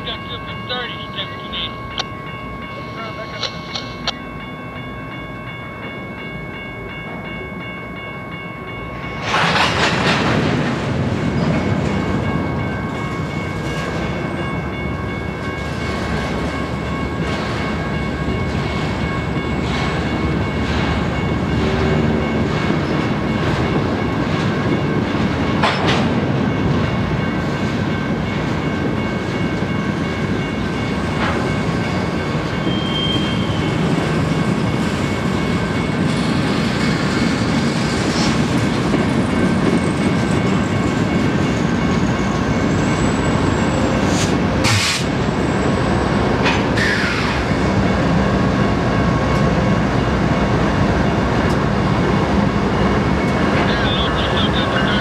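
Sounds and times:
crossing signal bell ringing: 0.0 - 9.4, 11.3 - 37.0, 38.8 - 44.0, 47.7 - 55.0
train wheels clacking over rail joints: 9.2 - 10.8.

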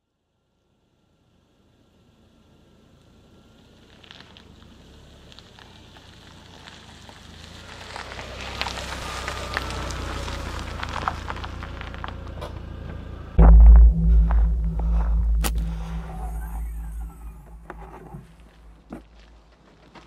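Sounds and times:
car tyres crunching over gravel: 3.2 - 12.8, 17.2 - 20.0
loud deep boom: 13.4 - 18.4.

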